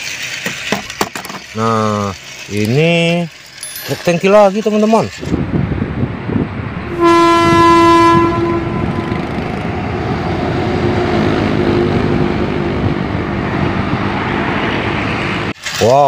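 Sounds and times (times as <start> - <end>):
truck engine and tyre noise: 0.0 - 3.6, 4.6 - 15.9
truck air horn blast: 6.8 - 9.9.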